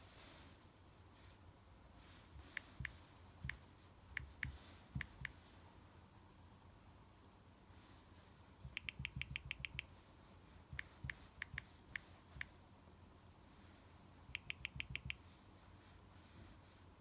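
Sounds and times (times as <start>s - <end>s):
fingertip tapping screen: 2.4s - 5.4s, 8.6s - 10.0s, 10.7s - 12.6s, 14.3s - 15.3s
phone keyboard clicks: 8.7s - 9.9s, 14.4s - 15.2s.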